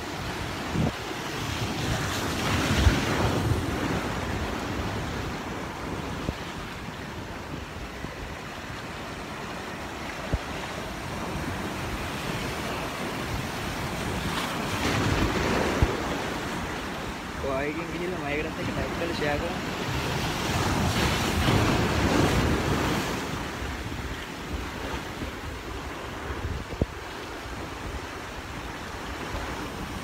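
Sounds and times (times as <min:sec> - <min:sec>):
sea surf washing over sand: 0:00.0 - 0:30.0
wind thumps on microphone: 0:26.3 - 0:27.1.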